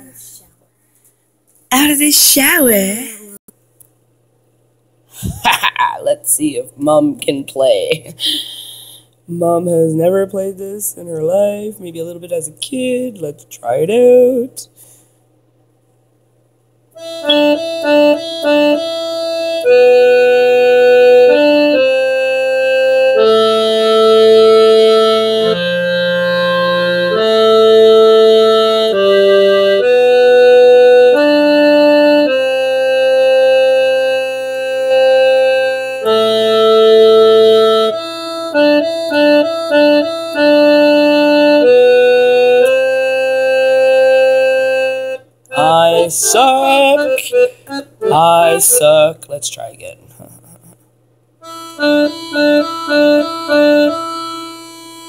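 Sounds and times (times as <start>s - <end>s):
electronic organ playing: 17.0s - 49.0s, 51.4s - 55.0s.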